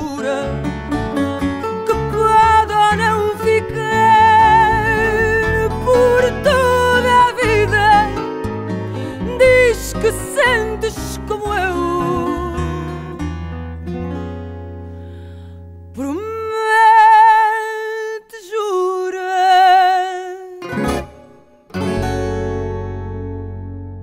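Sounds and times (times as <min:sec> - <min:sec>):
person singing with vibrato: 0:00.0 - 0:13.3, 0:16.0 - 0:21.7
plucked guitar notes: 0:00.0 - 0:16.0, 0:20.6 - 0:24.0.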